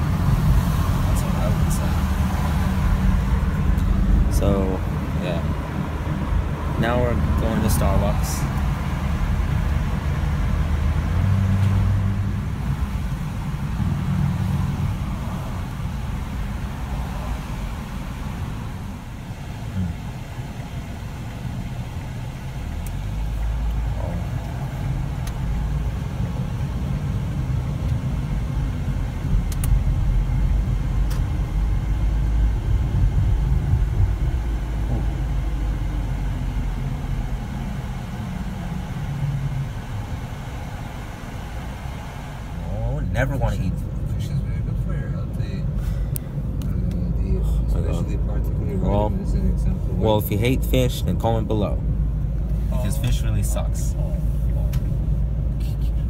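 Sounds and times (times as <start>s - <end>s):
car road and engine noise: 0.0s - 56.0s.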